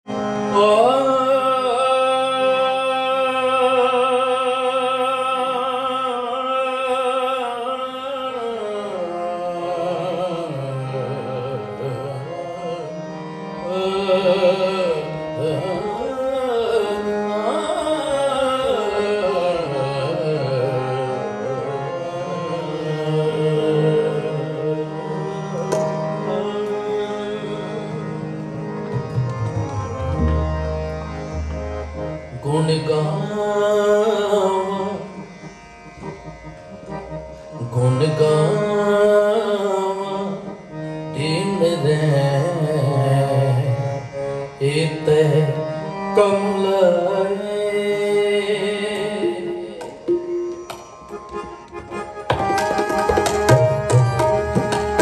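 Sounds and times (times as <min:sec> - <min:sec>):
harmonium: 0:00.0 - 0:55.0
tabla drums: 0:49.0 - 0:55.0.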